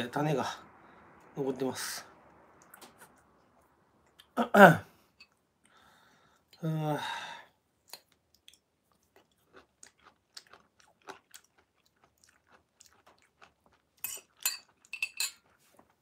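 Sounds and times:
person chewing: 7.8 - 16.0.

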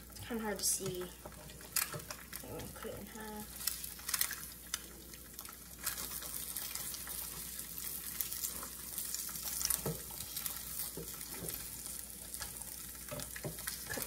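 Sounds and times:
eggs sizzling in frying pan: 0.0 - 14.0
spatula scraping pan: 5.8 - 14.0.

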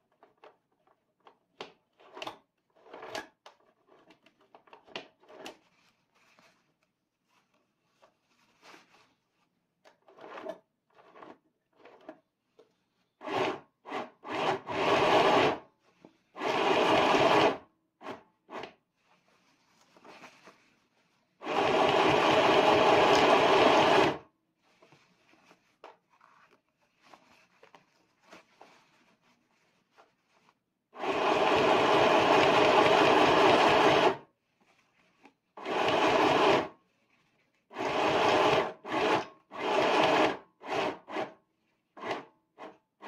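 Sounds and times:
sewing machine stitching: 2.0 - 4.1, 10.0 - 12.1, 13.2 - 15.7, 16.3 - 18.8, 21.4 - 24.2, 31.0 - 34.3, 35.6 - 36.8, 37.7 - 41.4, 42.0 - 42.8
fabric handling: 5.5 - 9.6, 18.9 - 21.4, 24.5 - 30.8.

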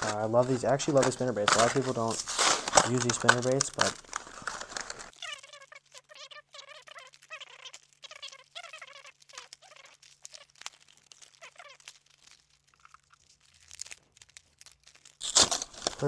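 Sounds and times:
package crinkling: 0.0 - 16.0
squeaky chirps: 5.1 - 13.6.

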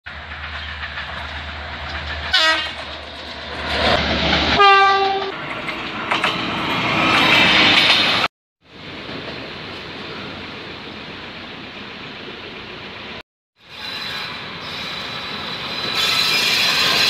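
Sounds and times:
passing trains rumbling: 0.1 - 17.0
train horn blasts: 2.3 - 2.8, 4.6 - 5.4.

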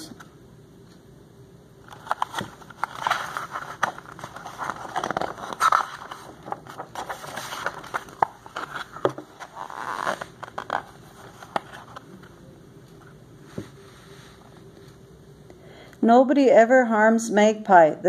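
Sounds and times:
paper crinkling: 1.8 - 12.3
book pages turning: 1.8 - 15.0.

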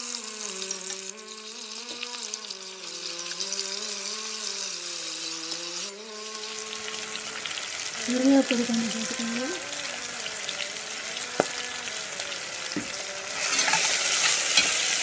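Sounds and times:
vegetables sizzling in hot oil: 0.0 - 15.0
metal spoon stirring in pot: 13.4 - 14.8.

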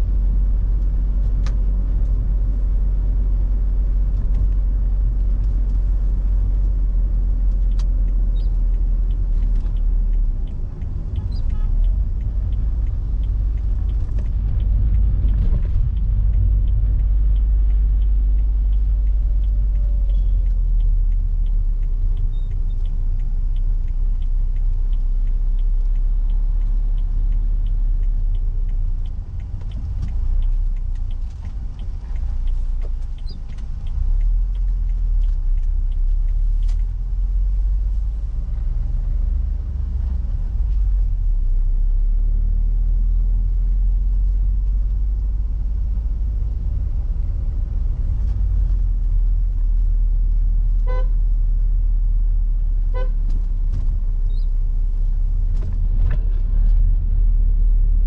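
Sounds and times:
car engine and road rumble: 0.0 - 58.0
faint regular ticking: 0.1 - 56.0
car horn: 50.8 - 51.2, 52.9 - 53.2.

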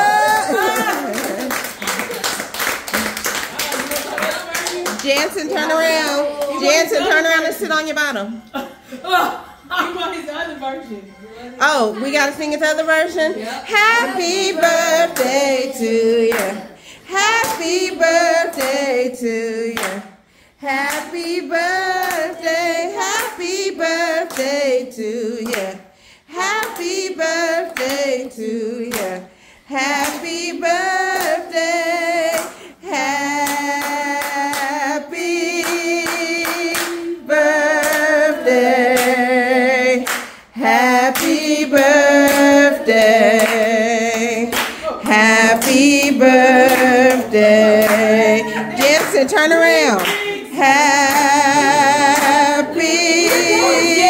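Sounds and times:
voices singing: 0.0 - 2.4, 11.8 - 54.0
hands clapping along: 0.2 - 6.7, 17.2 - 18.8, 19.7 - 20.0, 24.2 - 24.6, 26.4 - 29.2, 35.6 - 38.1, 40.0 - 54.0.

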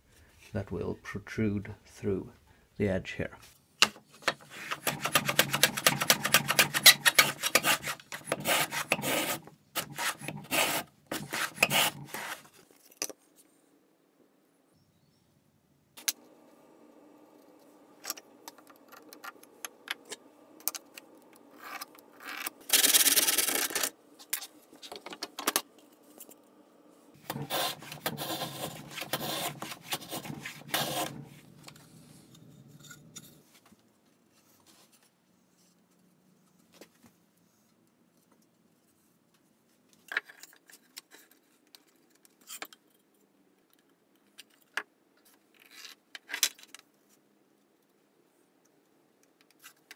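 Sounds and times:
hand plane strokes on wood: 4.4 - 12.5, 27.2 - 33.2.

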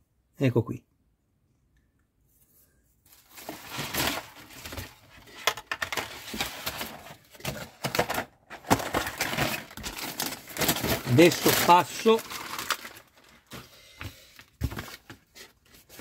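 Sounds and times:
plastic packaging crackling: 3.1 - 13.7.

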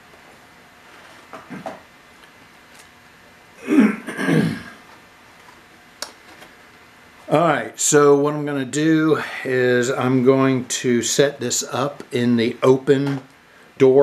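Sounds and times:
man clearing his throat: 3.6 - 4.8.

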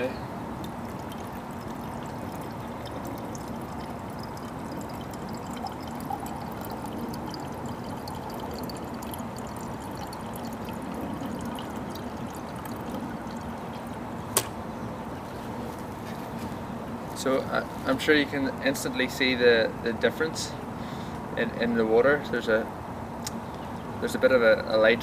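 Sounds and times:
water pouring into glass: 0.0 - 14.2.

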